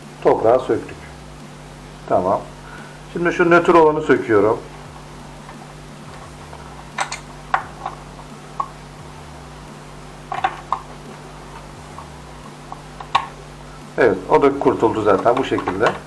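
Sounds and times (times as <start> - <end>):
faint steady hum: 0.0 - 16.0
screwdriver clicking on metal: 6.9 - 8.7.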